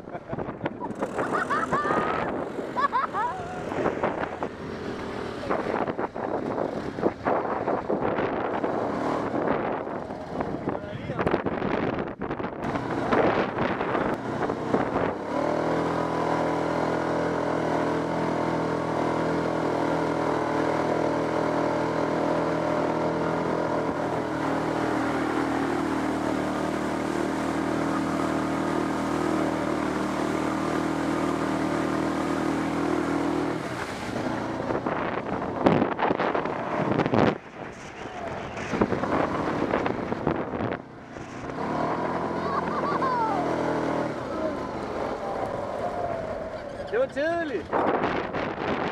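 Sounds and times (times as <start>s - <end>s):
quad bike engine running: 0.0s - 11.8s, 12.6s - 48.9s
gusty wind noise: 0.0s - 16.5s, 31.9s - 42.3s, 43.5s - 48.9s
water spraying off wheels: 12.7s - 46.6s.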